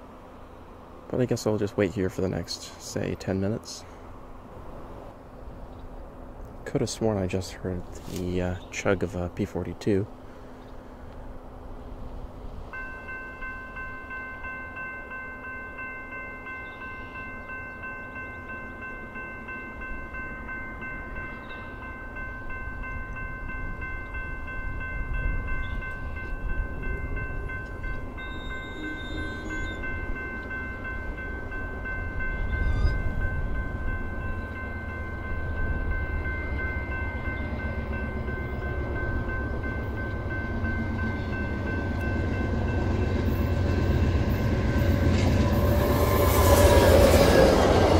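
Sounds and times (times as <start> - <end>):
diesel locomotive rumble: 22.6 - 47.9.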